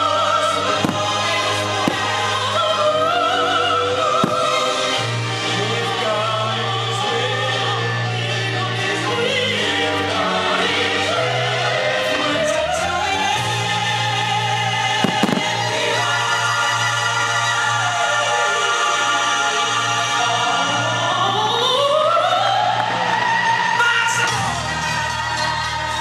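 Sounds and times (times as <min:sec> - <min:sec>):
operatic choral music: 0:00.0 - 0:26.0
firework bangs: 0:00.7 - 0:02.6, 0:04.2 - 0:04.9, 0:15.0 - 0:16.1.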